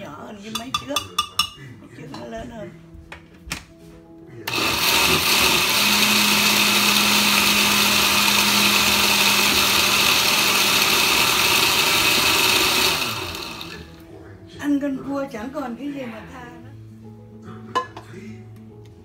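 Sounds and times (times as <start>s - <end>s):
blender whirring: 4.5s - 14.0s.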